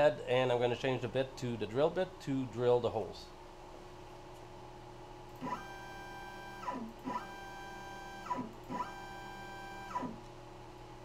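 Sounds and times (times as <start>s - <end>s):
stepper motors whining: 5.4s - 10.2s.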